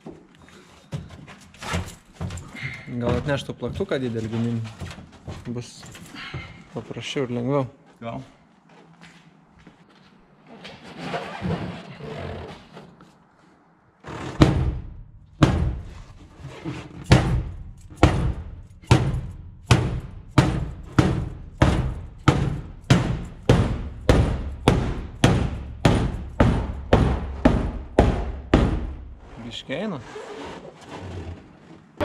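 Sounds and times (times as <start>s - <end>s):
hammer striking car metal body: 14.4s - 16.0s, 17.1s - 29.2s.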